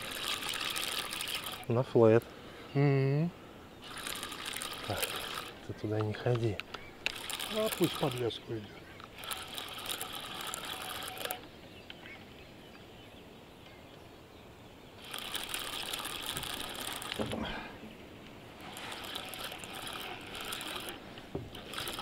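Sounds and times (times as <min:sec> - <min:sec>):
fishing reel ratcheting buzz: 0:00.0 - 0:01.8, 0:03.8 - 0:05.7, 0:07.0 - 0:08.4, 0:09.0 - 0:11.4, 0:15.0 - 0:17.4, 0:18.6 - 0:22.0.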